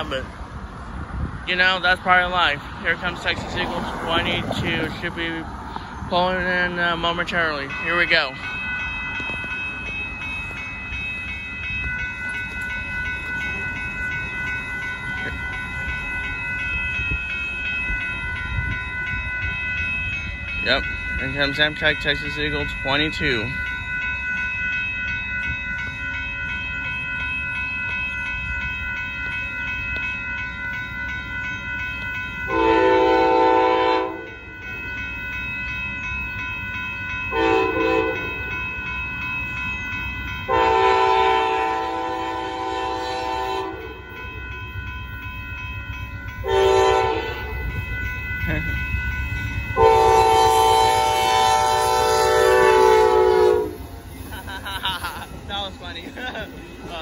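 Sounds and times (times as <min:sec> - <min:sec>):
crossing signal bells ringing: 0:00.0 - 0:57.0
train rumble: 0:00.0 - 0:57.0
train horn: 0:32.5 - 0:34.4, 0:37.3 - 0:38.4, 0:40.5 - 0:44.0, 0:46.4 - 0:47.6, 0:49.8 - 0:53.9.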